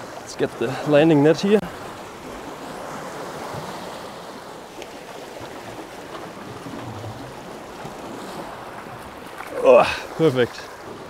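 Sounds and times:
waves splashing against rocks: 0:00.0 - 0:11.0.

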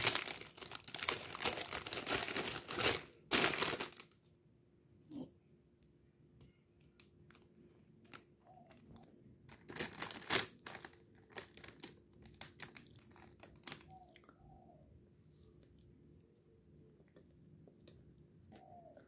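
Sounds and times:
plastic bag crinkling: 0:00.0 - 0:04.2, 0:09.5 - 0:14.0.

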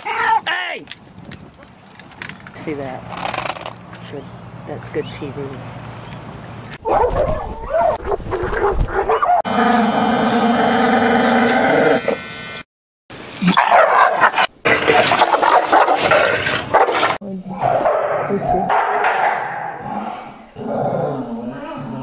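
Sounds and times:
dogs whining: 0:06.8 - 0:09.4
dogs barking: 0:06.8 - 0:09.5, 0:13.5 - 0:19.9.

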